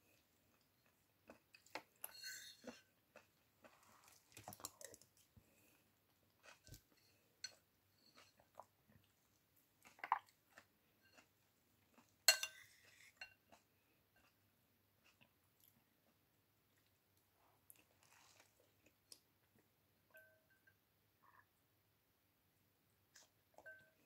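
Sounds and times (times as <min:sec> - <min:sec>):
soft chewing: 0:00.0 - 0:20.6, 0:22.8 - 0:24.0
metal spoon clinking on bowl: 0:02.0 - 0:02.8, 0:12.3 - 0:13.4, 0:20.1 - 0:20.8, 0:23.6 - 0:24.0.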